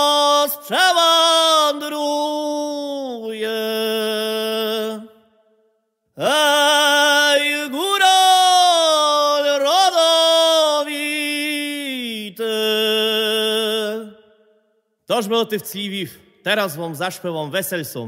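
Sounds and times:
man singing unaccompanied: 0.0s - 5.1s, 6.2s - 14.2s.

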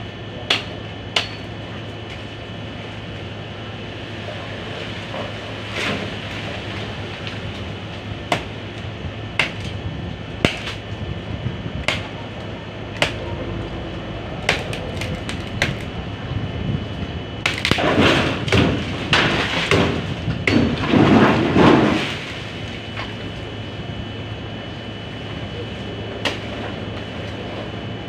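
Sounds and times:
machete chopping tree branch: 9.4s - 9.8s, 10.4s - 10.8s, 11.8s - 12.1s.

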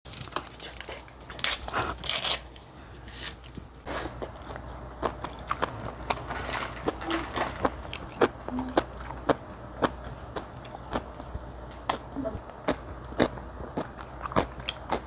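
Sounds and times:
chewing: 4.2s - 12.0s, 12.6s - 15.0s.

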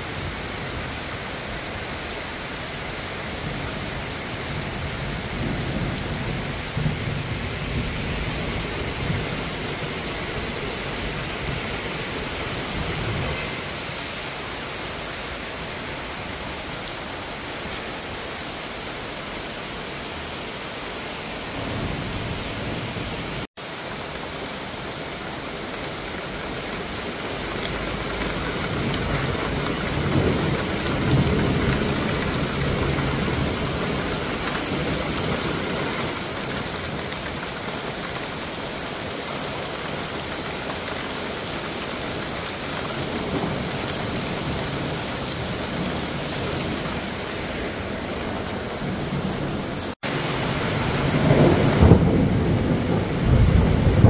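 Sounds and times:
heavy rain pouring: 0.0s - 54.0s
thunder rumble: 43.1s - 54.0s.

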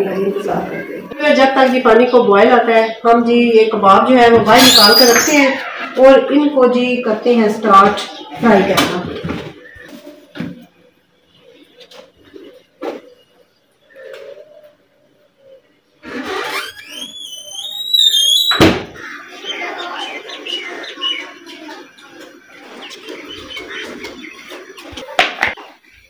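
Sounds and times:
squeaky door hinge: 16.1s - 18.6s
door banging shut: 18.5s - 19.0s.

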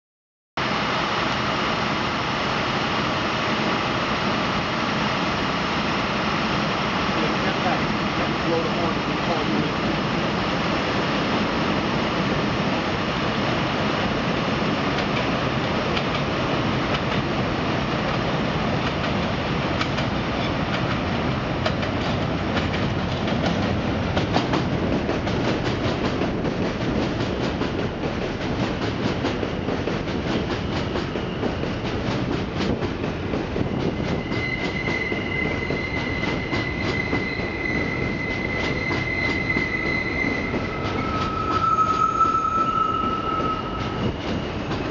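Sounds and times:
train wheels rumbling on rail: 0.7s - 44.9s
rapid train wheel clicks: 15.9s - 17.3s, 18.1s - 21.0s, 21.6s - 35.1s
high squeal: 33.6s - 44.9s.

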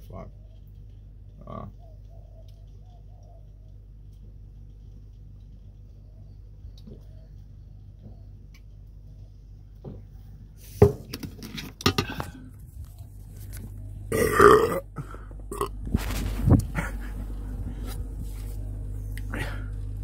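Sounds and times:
man belching loudly: 14.1s - 15.8s.

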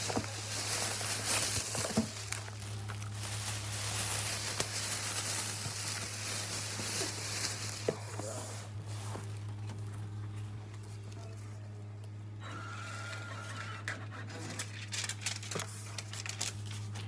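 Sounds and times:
low indoor hum: 0.0s - 17.0s
small clicks and rustles: 14.5s - 17.0s.

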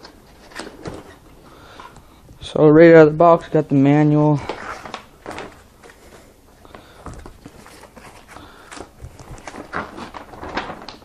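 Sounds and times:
cardboard packaging rustling: 0.0s - 2.0s, 4.3s - 11.0s.

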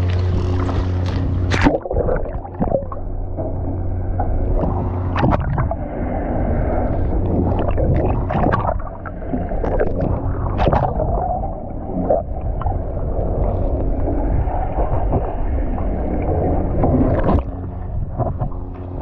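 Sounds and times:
boat engine idling: 0.0s - 1.6s, 11.2s - 19.0s
knocks and splashes: 0.0s - 3.1s, 4.2s - 5.8s, 7.3s - 11.2s
water sloshing: 0.0s - 19.0s.

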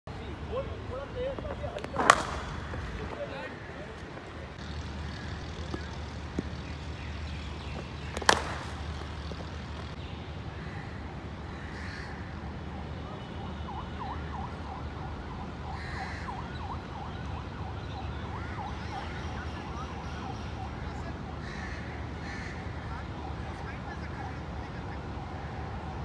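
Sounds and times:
low outdoor rumble: 0.2s - 10.0s
cricket bat hitting ball: 1.4s - 9.9s.

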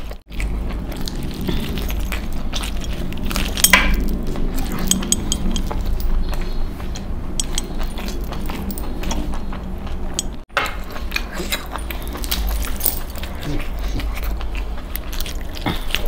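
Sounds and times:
close chewing: 0.0s - 16.0s
metallic clinks of jewellery: 1.8s - 6.2s, 7.4s - 9.3s, 10.1s - 10.4s, 11.8s - 13.4s.

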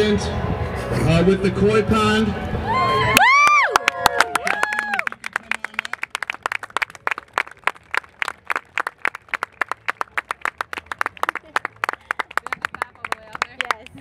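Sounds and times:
small group clapping: 3.2s - 14.0s.

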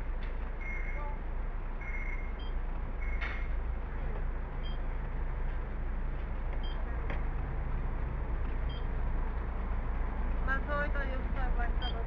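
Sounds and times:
bus engine idling: 0.0s - 12.0s
short high electronic beeps: 0.6s - 1.2s, 1.8s - 3.3s.

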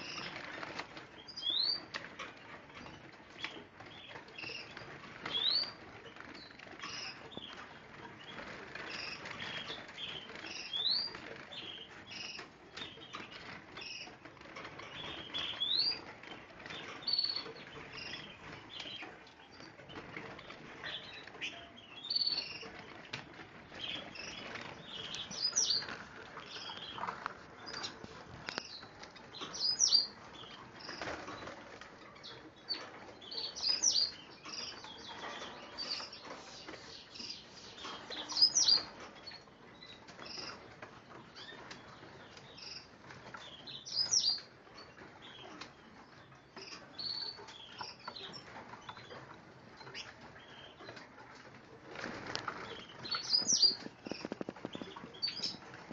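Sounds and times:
birds hopping in cages: 0.0s - 55.9s
finches chirping and whistling: 23.8s - 31.1s, 32.7s - 40.6s, 43.6s - 44.5s, 52.6s - 55.6s
wings fluttering: 51.9s - 55.9s.

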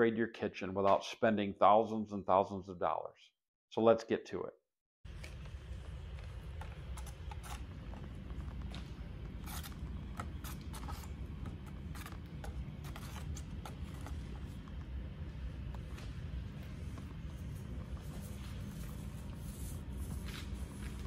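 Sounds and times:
steady low rumble: 5.2s - 21.0s.

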